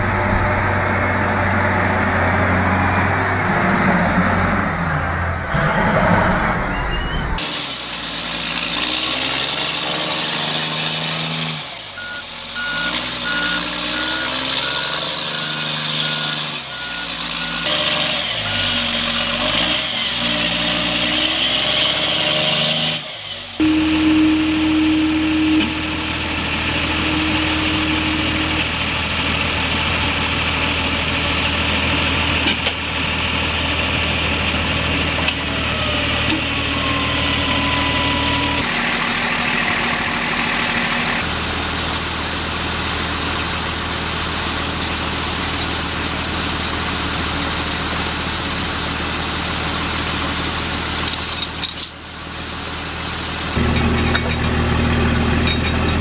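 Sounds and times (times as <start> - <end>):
diesel truck engines revving: 0.0 - 56.0
low diesel engine hum: 0.0 - 56.0
reversing beeper: 6.3 - 7.4, 12.0 - 19.4, 23.6 - 28.7, 35.6 - 41.2.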